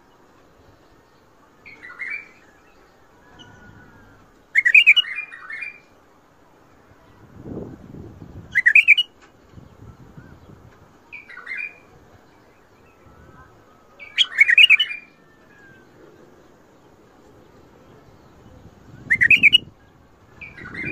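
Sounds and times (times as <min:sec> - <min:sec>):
bulbul singing: 0:01.6 - 0:05.9, 0:08.3 - 0:16.3, 0:17.6 - 0:20.9.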